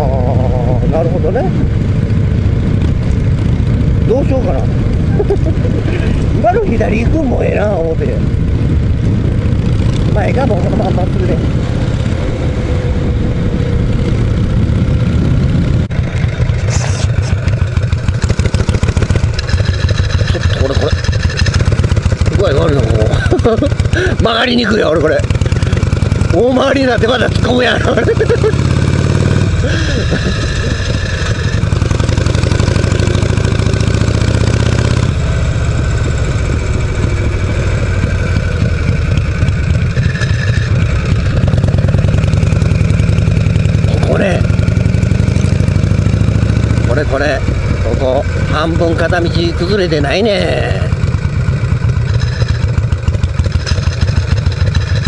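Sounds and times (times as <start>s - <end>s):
wind noise: 0.0s - 24.9s, 29.0s - 42.4s, 46.6s - 49.4s
motorcycle engine running: 0.0s - 55.0s.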